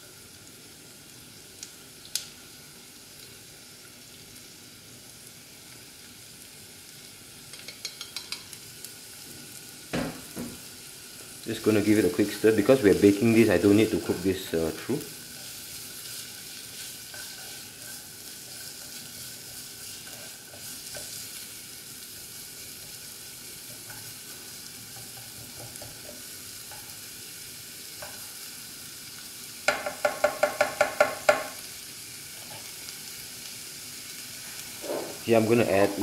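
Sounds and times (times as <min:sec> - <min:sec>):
onion and garlic sizzling in oil: 0:00.0 - 0:36.0
spatula strokes against pan: 0:15.2 - 0:21.6, 0:34.3 - 0:35.3
spatula scraping pan: 0:15.3 - 0:21.4, 0:34.7 - 0:35.3.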